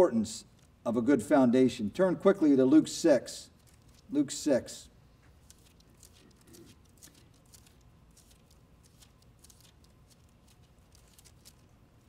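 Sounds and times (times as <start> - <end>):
book pages rustling: 3.6 - 4.1, 5.2 - 11.7.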